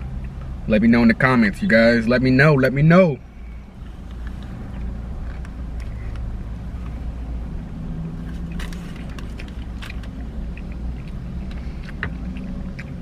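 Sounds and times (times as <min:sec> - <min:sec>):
low rumble inside car: 0:00.0 - 0:13.0
man chewing food: 0:03.4 - 0:13.0
wet mouth clicks: 0:10.0 - 0:13.0.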